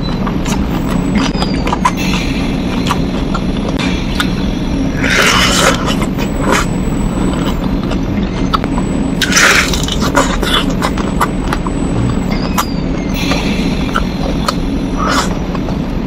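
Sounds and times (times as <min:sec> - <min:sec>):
chewing and mouth clicks: 0:00.0 - 0:04.4, 0:05.0 - 0:15.7
low background hum: 0:00.0 - 0:16.0.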